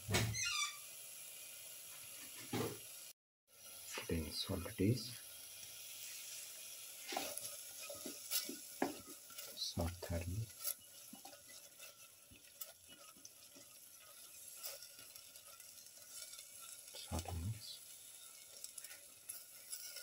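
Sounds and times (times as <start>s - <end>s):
faint sizzle: 0.0s - 20.0s
spatula scraping a pan: 5.9s - 20.0s.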